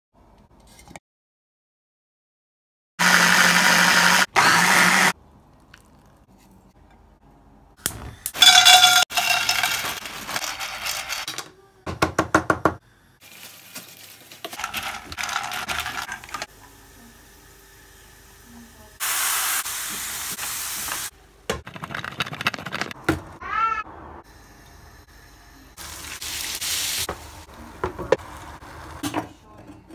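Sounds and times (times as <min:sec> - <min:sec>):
pasta sizzling in a pan: 0:19.0 - 0:21.1.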